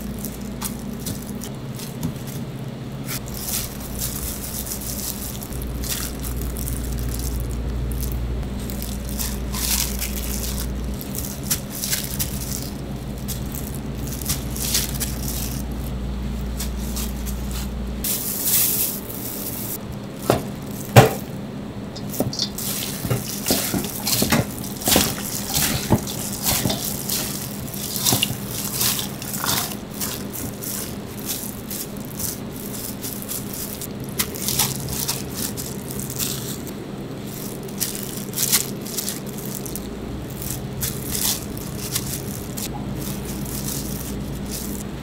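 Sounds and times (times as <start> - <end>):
gloved hands tossing food in bowl: 0.0 - 21.4, 22.0 - 45.0
steady low hum: 0.0 - 45.0.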